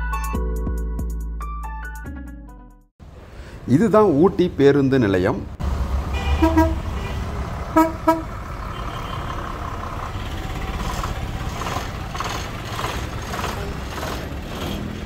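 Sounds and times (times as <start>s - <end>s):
bus engine running: 5.5s - 15.0s
vehicle horn toots: 6.1s - 9.4s.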